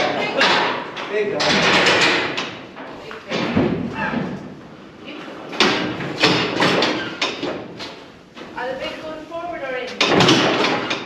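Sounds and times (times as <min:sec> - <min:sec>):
metal gates clanging: 0:00.0 - 0:02.6.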